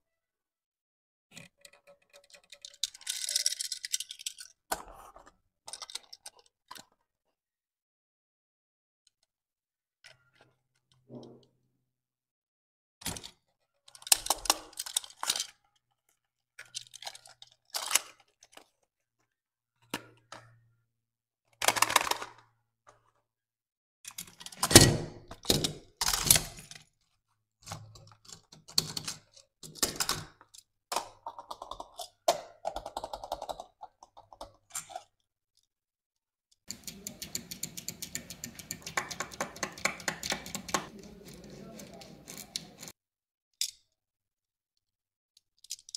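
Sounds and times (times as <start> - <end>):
toy cars clicking and tapping: 1.4 - 4.6, 36.7 - 43.0, 45.6 - 45.9
toy car wheels ticking: 36.7 - 42.9.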